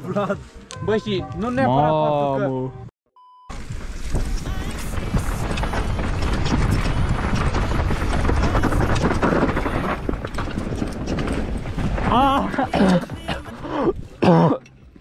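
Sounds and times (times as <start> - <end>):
heavy low rumble: 3.5 - 14.2
mountain bike clattering over stones: 3.6 - 13.6.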